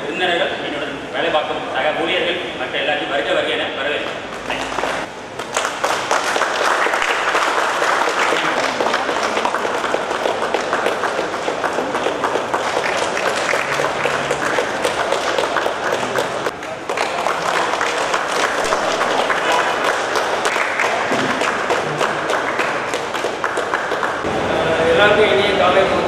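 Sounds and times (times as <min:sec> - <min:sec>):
group of people clapping: 0:04.0 - 0:24.3.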